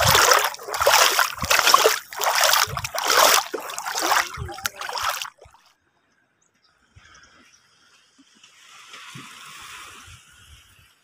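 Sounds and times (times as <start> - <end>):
feet wading through shallow water: 0.0 - 5.6.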